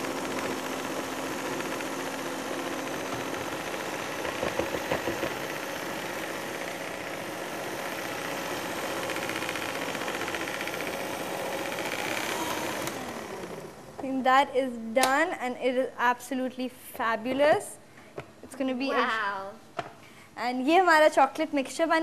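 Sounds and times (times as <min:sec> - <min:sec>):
stand mixer motor whirring: 0:00.0 - 0:14.0.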